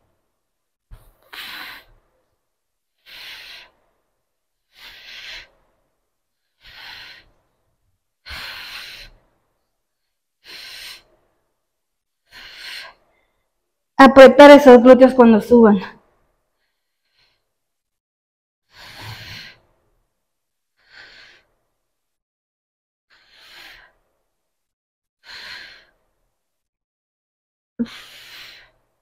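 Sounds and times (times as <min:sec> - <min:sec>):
woman breathing hard under exertion: 0:01.0 - 0:02.1, 0:03.0 - 0:07.5, 0:08.2 - 0:09.4, 0:10.4 - 0:11.4, 0:12.2 - 0:13.6, 0:18.7 - 0:19.8, 0:20.8 - 0:21.6, 0:23.1 - 0:24.2, 0:25.2 - 0:26.2, 0:27.8 - 0:29.0.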